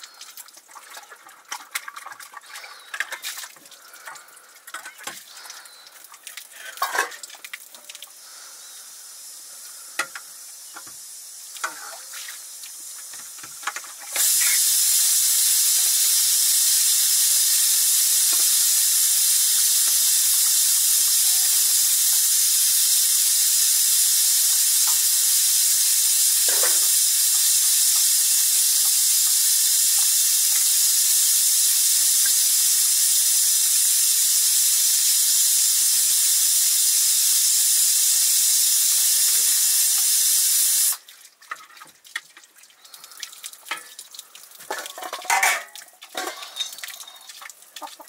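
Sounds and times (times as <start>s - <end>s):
loud steady cooking hiss: 0.0s - 0.2s, 8.1s - 41.0s, 44.7s - 47.2s.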